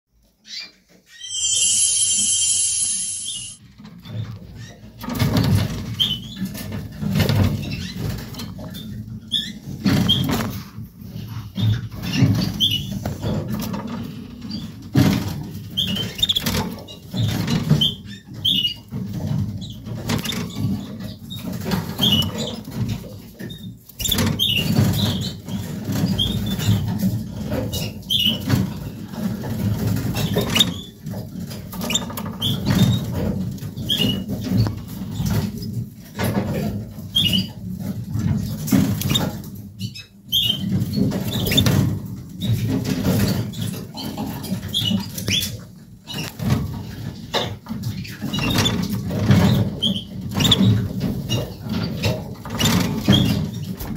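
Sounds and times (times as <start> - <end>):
canaries chirping: 0.3 - 3.6, 15.5 - 28.6, 29.6 - 37.6, 38.7 - 53.8.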